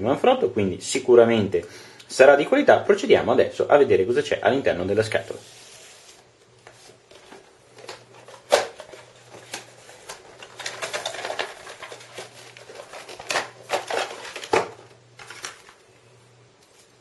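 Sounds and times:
packaging rustling: 5.8 - 15.9.

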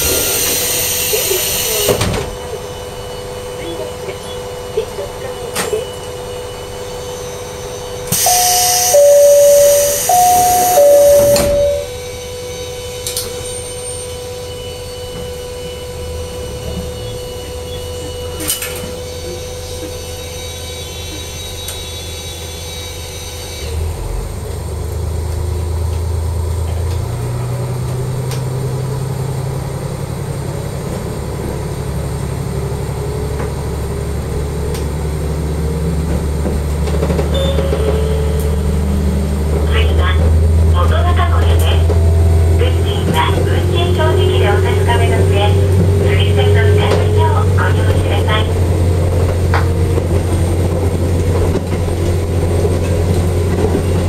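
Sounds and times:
two-note falling chime: 8.2 - 12.0
diesel engine pulling away: 23.7 - 54.0.

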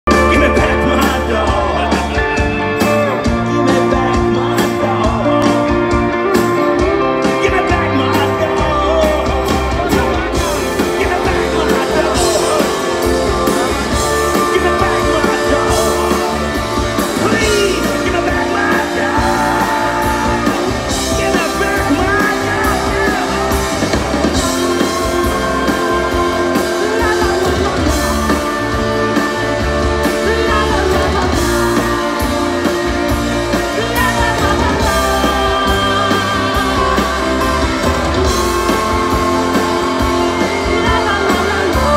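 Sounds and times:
live rock band playing: 0.0 - 41.9
men singing together: 10.8 - 16.6, 17.2 - 23.6.

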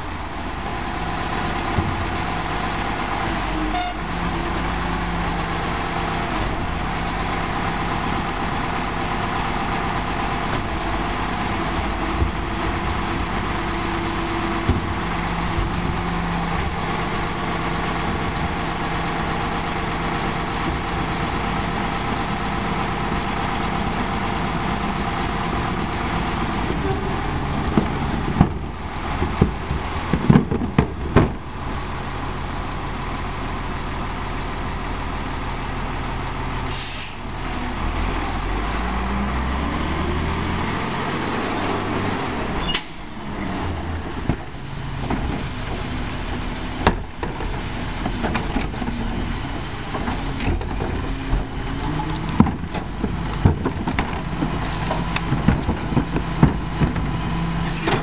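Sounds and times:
diesel engine running: 0.0 - 58.0
air brake hiss: 36.6 - 37.3
carts knocking and banging: 44.1 - 58.0.

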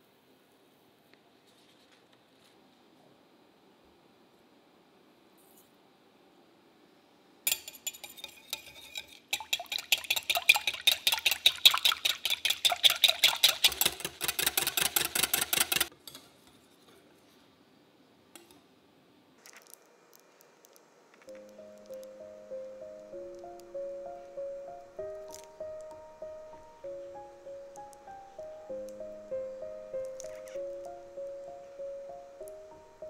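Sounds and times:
whisk clinking on glass bowl: 7.6 - 15.8
whisk beating cream: 8.8 - 15.9.

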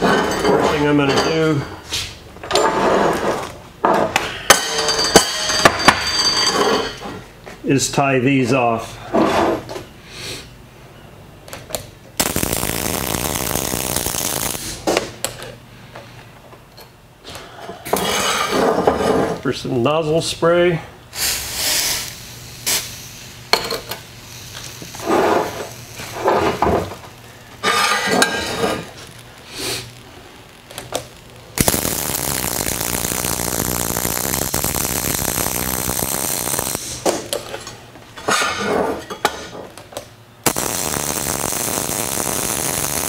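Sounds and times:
spray can hiss: 12.2 - 14.8, 21.2 - 23.3, 31.6 - 37.1, 40.4 - 43.0
welder arc crackling: 12.2 - 15.4, 21.1 - 37.8, 40.4 - 43.0.

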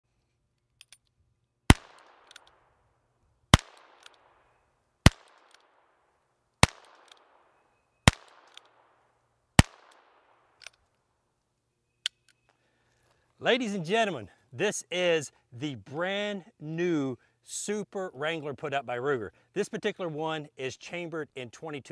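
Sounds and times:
revolver gunshots: 1.7 - 2.4, 3.5 - 4.3, 5.0 - 5.5, 6.6 - 7.4, 8.1 - 8.9, 9.6 - 10.3.

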